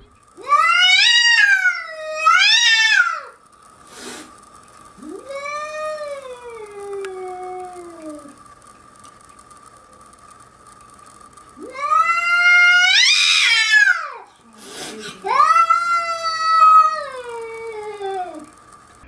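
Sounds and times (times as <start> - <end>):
cat yowling: 0.4 - 3.4, 11.6 - 14.2, 15.1 - 18.5.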